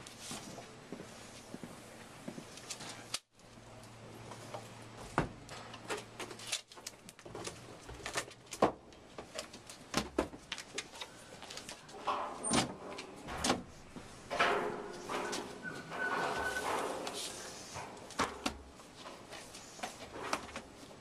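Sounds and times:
books knocking and clattering: 7.2 - 17.4, 18.0 - 21.0.

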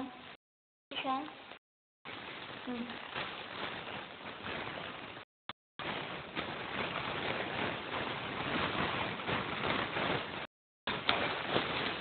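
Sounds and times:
plastic bag crinkling: 2.1 - 12.0.

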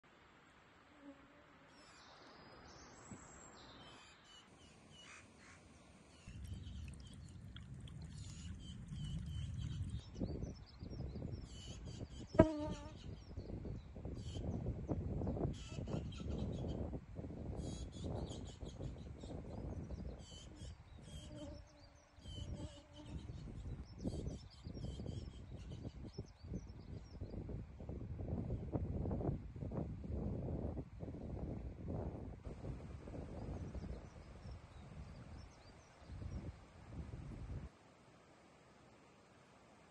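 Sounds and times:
small birds chirping: 1.8 - 14.7
wind rumble on microphone: 6.2 - 37.7.

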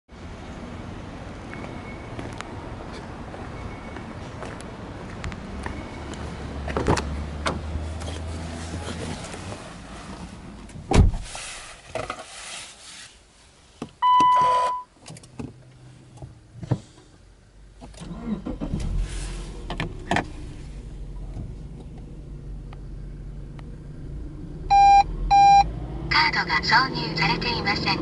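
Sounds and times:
heavy thump: 10.9 - 11.4
car engine starting and idling: 14.0 - 28.0.

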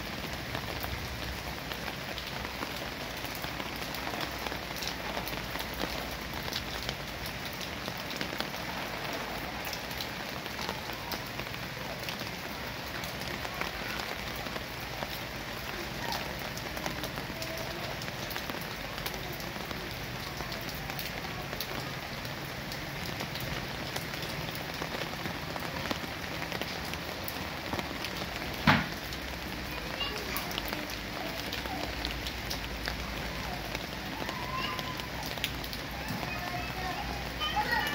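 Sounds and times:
rain falling on leaves: 0.0 - 37.9
sharp knock: 28.6 - 28.9.

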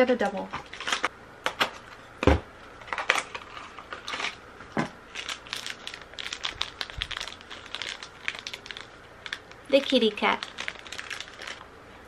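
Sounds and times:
packaging crinkling and rustling: 0.6 - 1.8, 2.8 - 11.7
plastic bag crumpling: 5.1 - 11.7.

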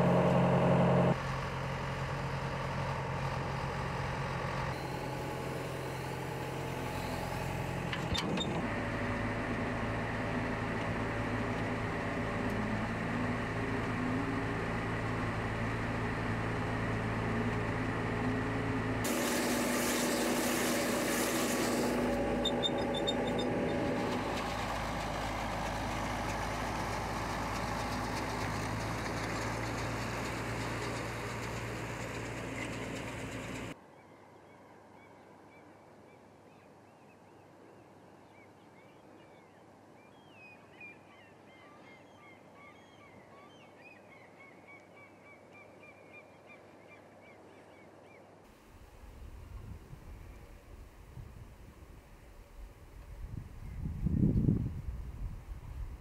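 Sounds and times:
machinery humming: 0.0 - 1.2, 4.8 - 33.8
loud hiss: 19.1 - 22.6.

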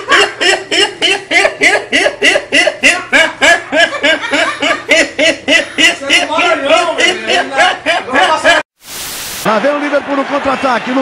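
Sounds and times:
young man laughing hard: 0.0 - 8.6.

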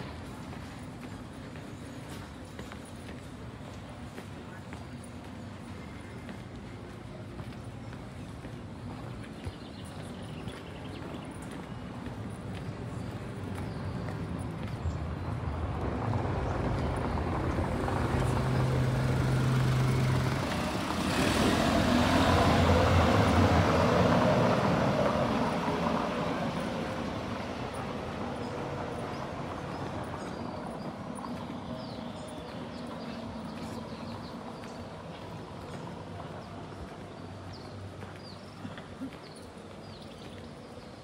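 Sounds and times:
vehicle hum: 12.1 - 38.0
vehicle rushing past: 15.9 - 29.7.

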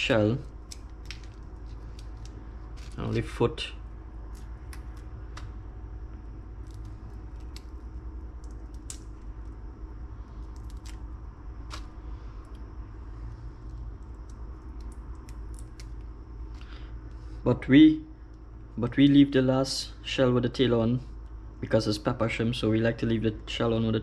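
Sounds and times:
low hum: 0.0 - 24.0
shrimp shells crackling: 0.4 - 3.4, 6.6 - 9.3.

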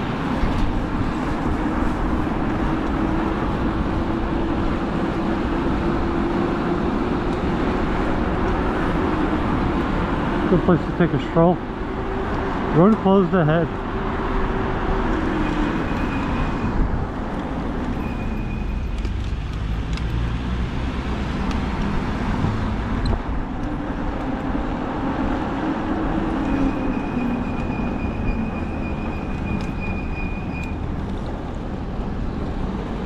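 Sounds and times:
tires rolling on road: 0.0 - 33.0
wind noise: 13.8 - 18.2.

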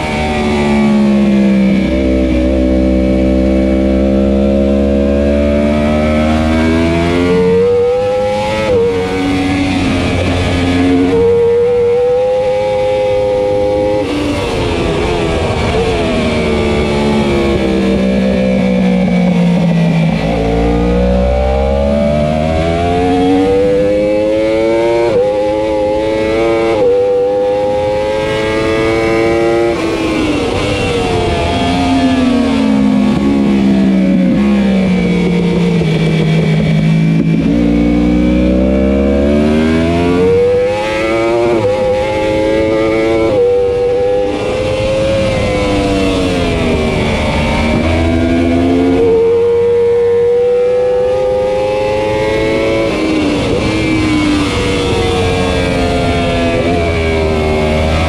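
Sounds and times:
motorcycle engine revving: 0.0 - 58.0
wind rush: 22.4 - 38.3, 51.4 - 58.0.

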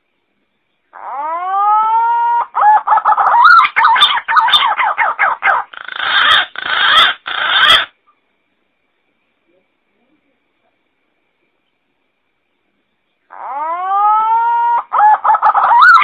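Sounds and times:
pigeon call whistle and warble: 13.4 - 16.0.

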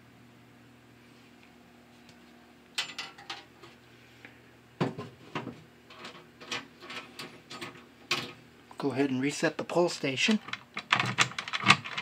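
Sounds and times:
key rattling in door lock: 10.4 - 12.0.

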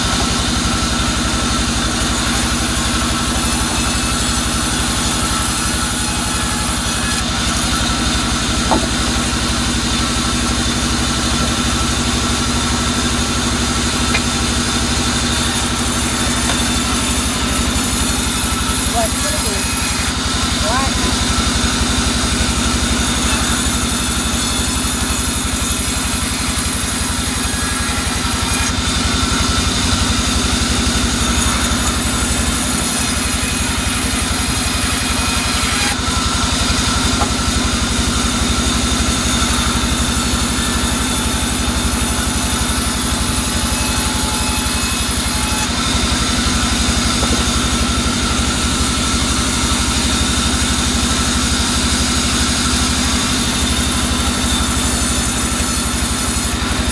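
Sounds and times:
band sawmill running: 0.0 - 56.9
saw blade hissing through log: 12.5 - 21.9.

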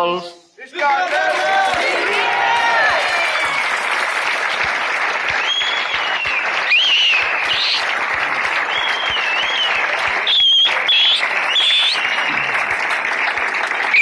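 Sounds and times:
crowd applauding: 0.6 - 14.0
shrill whistles: 5.3 - 12.6, 13.8 - 14.0.

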